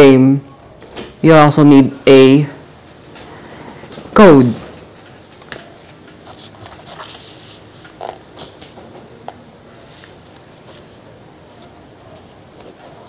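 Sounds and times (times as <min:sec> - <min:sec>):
card box rustling: 0:06.2 - 0:08.5.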